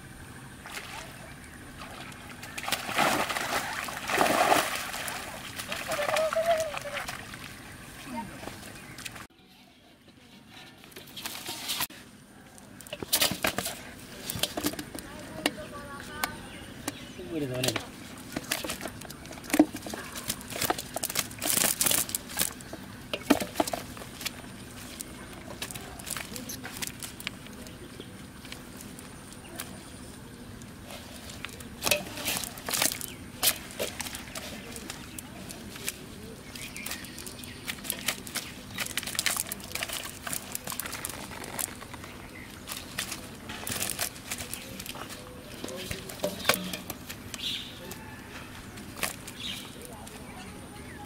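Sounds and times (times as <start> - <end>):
net and leaves rustling: 0.1 - 51.0
fish slapping in wet net: 1.8 - 7.6
fish flapping and slapping: 1.8 - 7.8, 17.6 - 27.6, 30.8 - 47.4.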